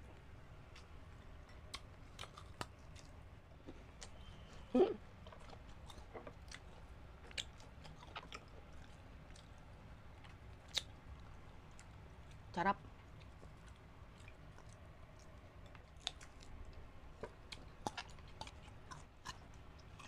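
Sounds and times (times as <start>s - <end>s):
crisp bites and chewing: 1.5s - 3.2s.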